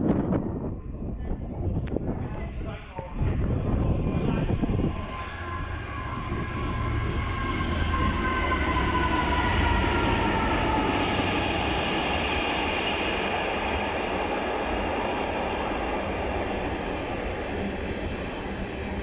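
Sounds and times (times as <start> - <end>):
diesel locomotive engine rumble: 0.4 - 19.0
whining tones: 4.5 - 14.8.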